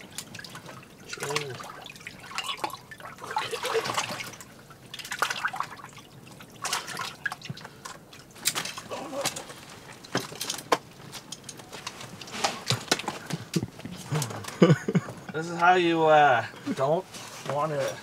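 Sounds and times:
water splashing: 0:00.0 - 0:14.2
water dripping: 0:00.0 - 0:14.8.

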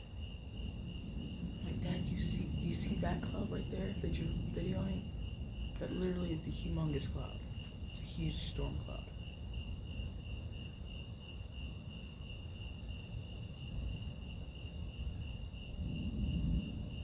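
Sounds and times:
low rumbling noise: 0:00.0 - 0:10.9
crickets chirring: 0:00.0 - 0:17.0.

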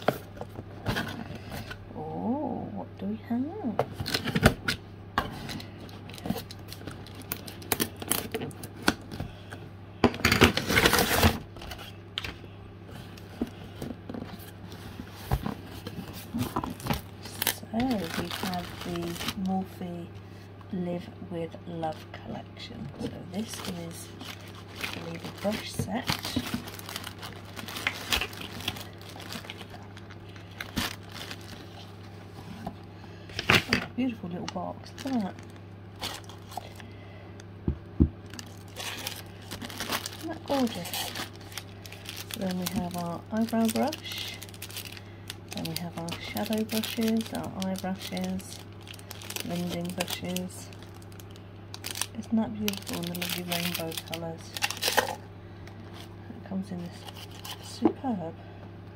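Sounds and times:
packing tape tearing: 0:06.1 - 0:09.0, 0:10.2 - 0:12.3, 0:16.4 - 0:19.5, 0:23.4 - 0:31.8, 0:35.0 - 0:36.8, 0:38.2 - 0:55.2, 0:57.0 - 0:57.7.

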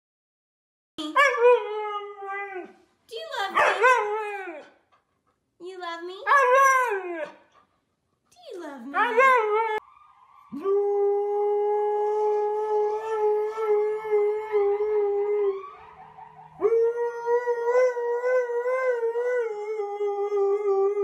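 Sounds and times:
dog howling: 0:03.6 - 0:04.7, 0:06.3 - 0:07.4, 0:09.0 - 0:09.8, 0:10.5 - 0:21.0.

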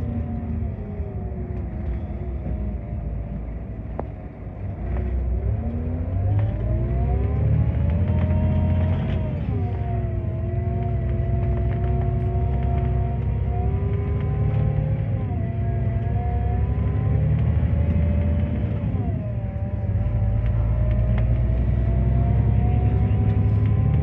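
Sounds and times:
coach engine drone and whine: 0:00.0 - 0:24.0.

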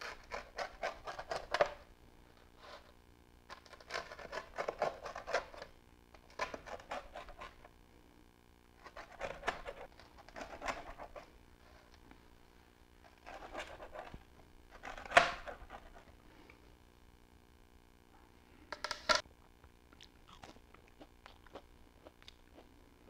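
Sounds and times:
pizza cutter crunching through crust: 0:00.0 - 0:01.9, 0:03.5 - 0:07.6, 0:08.8 - 0:11.3, 0:13.1 - 0:16.1.

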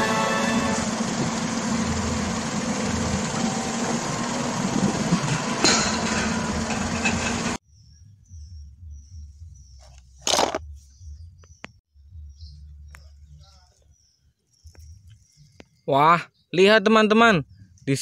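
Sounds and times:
car engine and road noise: 0:00.0 - 0:07.6.

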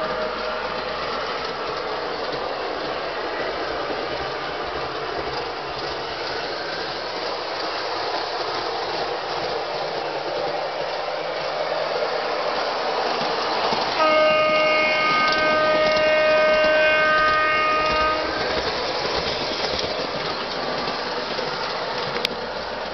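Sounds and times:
model train rolling: 0:00.0 - 0:22.9
model train horn chord: 0:14.0 - 0:18.4.

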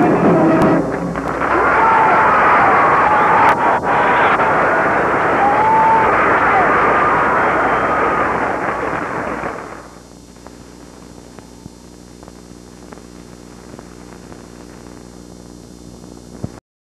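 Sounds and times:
crowd noise: 0:00.0 - 0:10.1
mains hum: 0:00.0 - 0:16.6.

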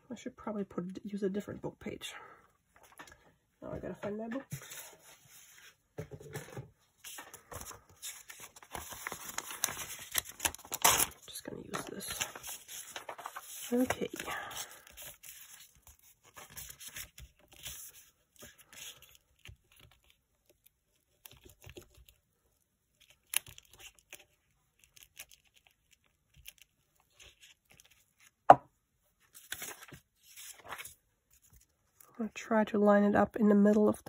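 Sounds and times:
paper rustling: 0:04.4 - 0:22.2, 0:22.9 - 0:28.4, 0:29.2 - 0:32.1.

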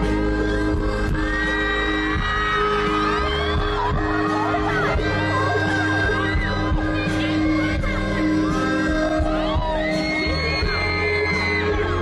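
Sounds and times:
audience whooping and shouting: 0:00.0 - 0:12.0
live band playing pop ballad: 0:00.0 - 0:12.0.

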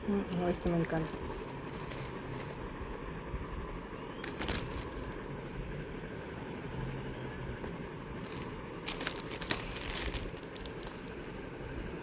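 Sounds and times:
low background rumble: 0:00.0 - 0:12.0
plastic sleeves rustling: 0:00.4 - 0:02.6, 0:04.2 - 0:05.3, 0:08.1 - 0:11.4.

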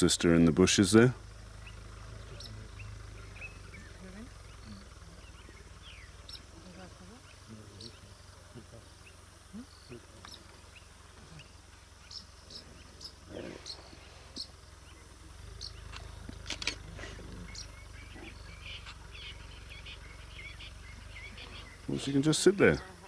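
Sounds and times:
high chirps of birds and insects: 0:00.0 - 0:23.0
low steady hum: 0:00.0 - 0:23.0
sharp clicks: 0:15.9 - 0:16.8.

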